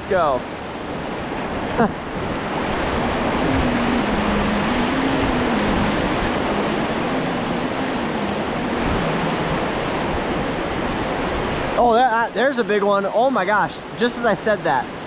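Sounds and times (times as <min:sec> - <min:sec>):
river rapids rushing over rocks: 0:00.1 - 0:12.3
faint low wavering tone: 0:03.0 - 0:10.5.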